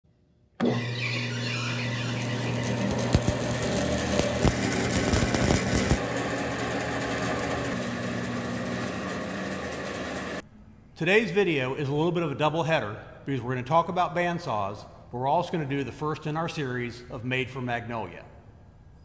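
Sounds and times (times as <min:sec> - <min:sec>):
band saw running: 0:00.6 - 0:10.4.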